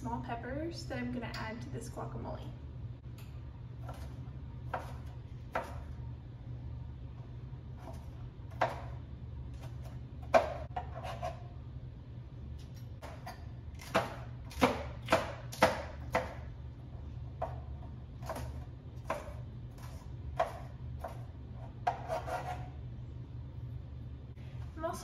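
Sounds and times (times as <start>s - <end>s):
knife chopping on cutting board: 3.8s - 5.9s, 7.8s - 9.0s, 9.6s - 11.4s, 13.0s - 16.5s, 17.4s - 22.7s.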